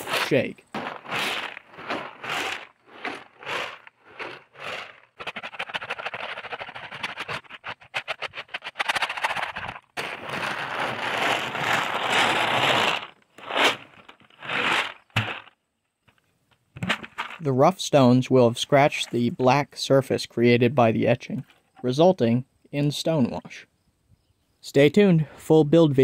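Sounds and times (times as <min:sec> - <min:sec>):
rocks and knife rattling in bucket: 0:00.0 - 0:15.5, 0:16.8 - 0:17.6.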